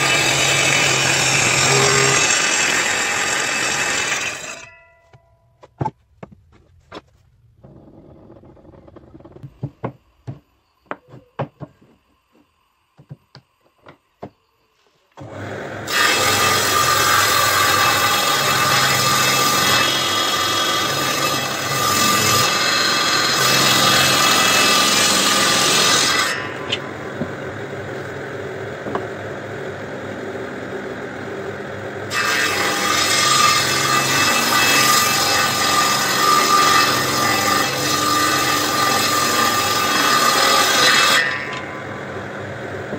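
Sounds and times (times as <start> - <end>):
table saw cutting board: 0.0 - 4.7, 15.2 - 28.2, 32.1 - 42.2
wood knocking: 5.1 - 11.9.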